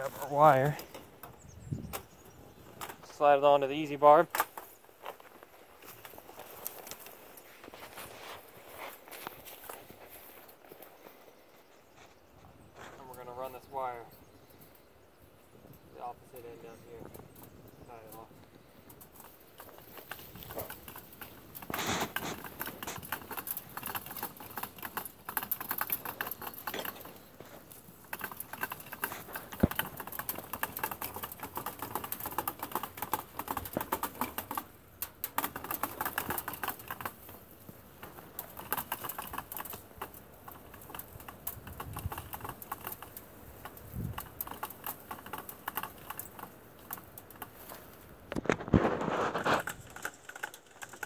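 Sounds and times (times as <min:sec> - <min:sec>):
barbed wire spool clicking and rattling: 0:15.6 - 0:51.0.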